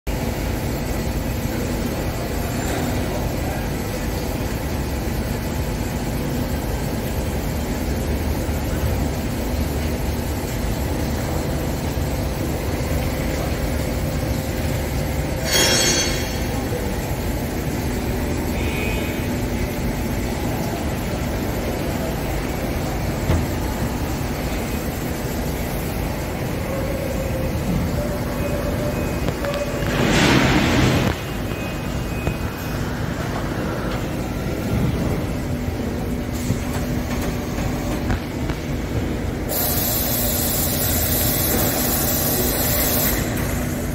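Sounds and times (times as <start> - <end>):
machining centre mechanical din: 0.1 - 43.9
coolant spray hiss: 39.5 - 43.9.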